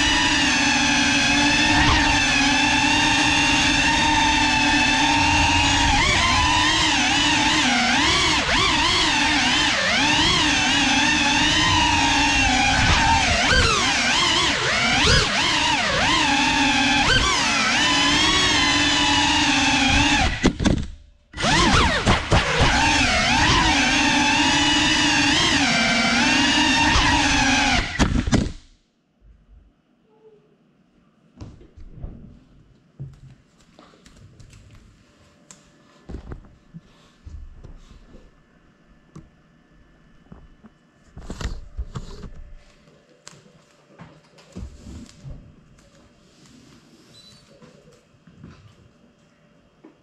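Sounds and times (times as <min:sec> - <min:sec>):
quadcopter motors whining: 0:00.0 - 0:20.5, 0:21.4 - 0:28.1.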